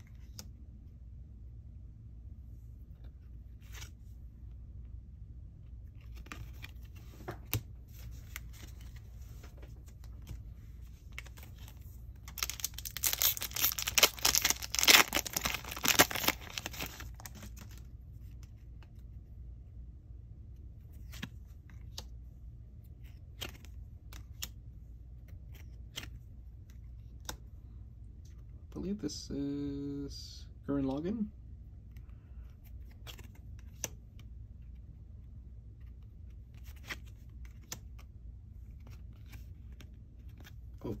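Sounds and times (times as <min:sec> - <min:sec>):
foil wrapper tearing and crinkling: 0:12.3 - 0:17.3.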